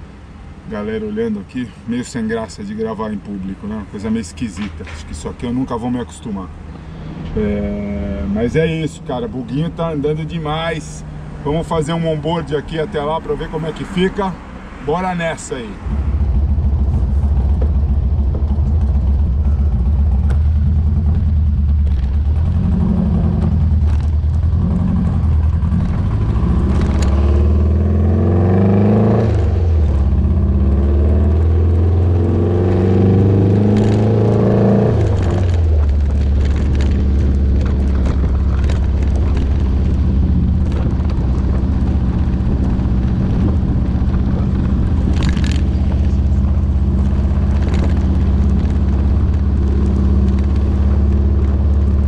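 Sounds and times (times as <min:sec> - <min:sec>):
car engine running: 0:15.6 - 0:52.0.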